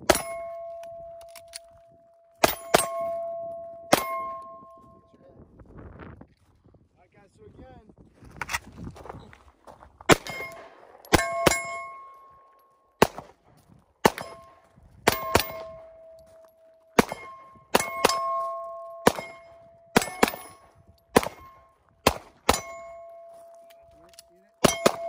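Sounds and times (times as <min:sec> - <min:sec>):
steel targets ringing: 0:00.0 - 0:01.5, 0:02.4 - 0:05.1, 0:10.2 - 0:12.5, 0:14.1 - 0:21.8, 0:22.4 - 0:23.7, 0:24.6 - 0:25.0
pistol shots: 0:00.0 - 0:01.6, 0:02.4 - 0:04.7, 0:10.1 - 0:12.1, 0:13.0 - 0:13.4, 0:14.0 - 0:16.2, 0:17.0 - 0:23.3, 0:24.6 - 0:25.0.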